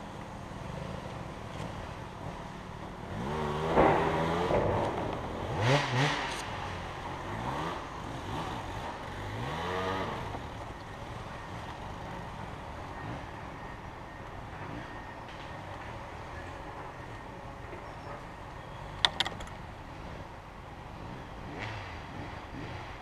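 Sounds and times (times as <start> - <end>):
engine revving: 3.1 - 13.8, 20.9 - 23.0.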